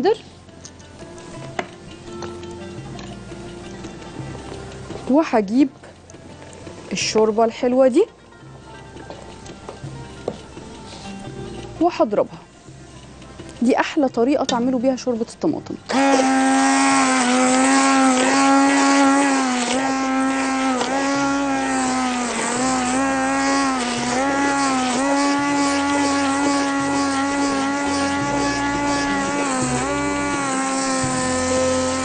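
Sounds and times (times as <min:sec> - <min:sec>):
hand blender motor humming: 0:15.9 - 0:32.0.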